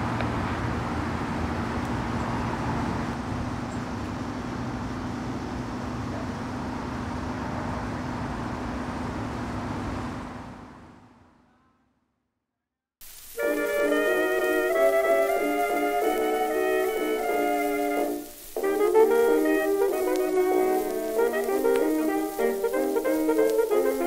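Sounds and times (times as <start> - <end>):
constant low hum: 0.0 - 11.3.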